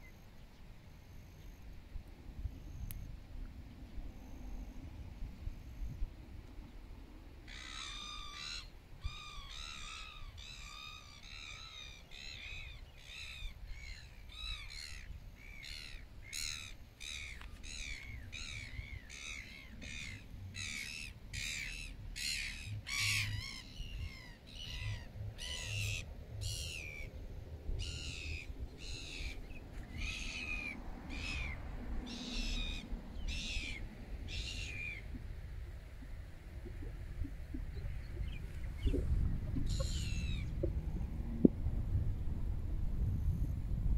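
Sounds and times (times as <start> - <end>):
low rumble: 26.1 - 43.9.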